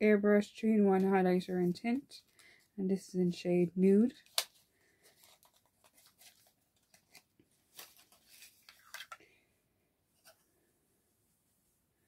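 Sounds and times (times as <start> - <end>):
packaging clicks and rustles: 4.2 - 9.2.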